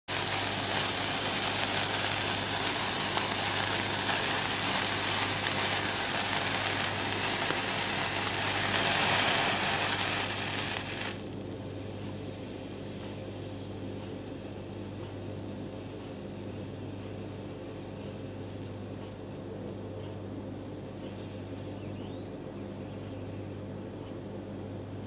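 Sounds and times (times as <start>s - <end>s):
sparklers fizzing and crackling: 0.1s - 11.6s.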